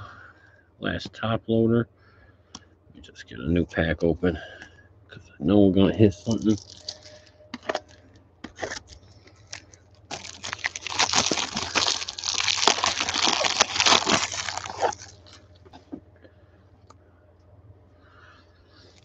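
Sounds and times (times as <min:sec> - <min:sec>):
plastic wrapper crinkling and tearing: 0:06.1 - 0:15.5.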